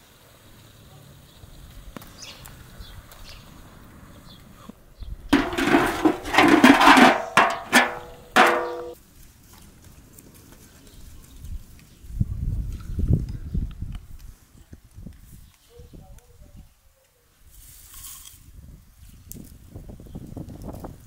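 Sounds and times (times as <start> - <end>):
metal pan scraping and clattering: 5.4 - 9.0
metal clanks with ring: 7.1 - 9.0.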